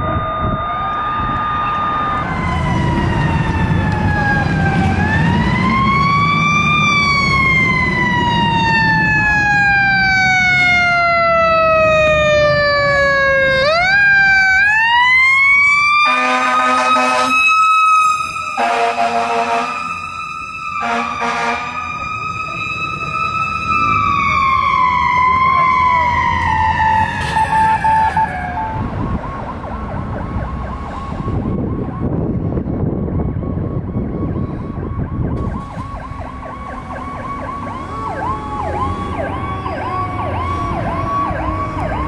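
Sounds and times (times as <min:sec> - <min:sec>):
fire truck siren: 0:00.0 - 0:42.0
truck engine rumble: 0:00.0 - 0:42.0
horn blaring: 0:16.0 - 0:17.6, 0:18.2 - 0:20.1, 0:20.8 - 0:22.0.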